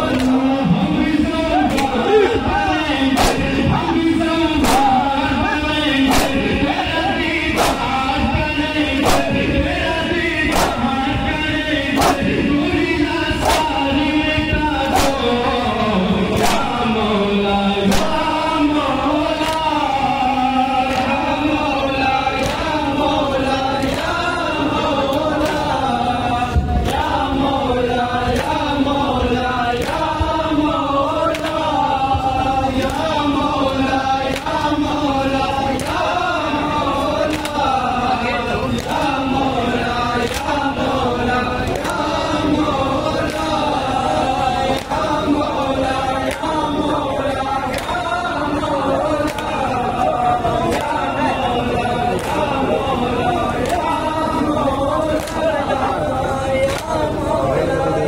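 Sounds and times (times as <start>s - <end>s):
men chanting together: 0.0s - 58.0s
person reciting on a microphone: 0.0s - 58.0s
hands slapping bare chests: 7.6s - 7.9s, 9.0s - 9.3s, 10.5s - 10.9s, 15.0s - 15.3s.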